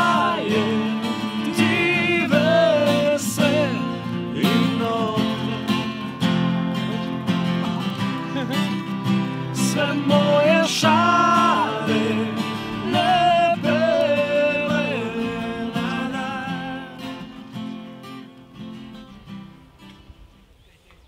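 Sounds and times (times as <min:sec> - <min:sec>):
person singing long notes: 0:00.0 - 0:06.3, 0:09.4 - 0:17.5
acoustic guitar strumming: 0:00.0 - 0:20.1.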